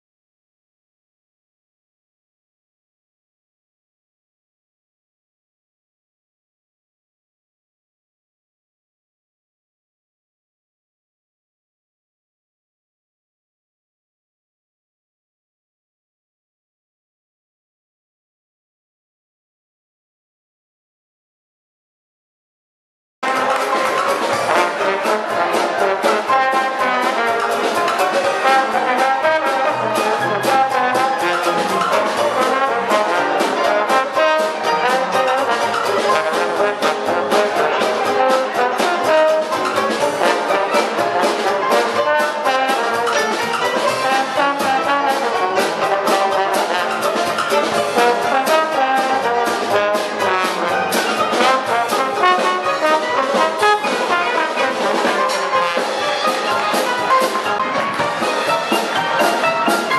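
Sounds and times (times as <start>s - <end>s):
jazz band playing: 23.2s - 59.9s
trombone: 23.2s - 59.9s.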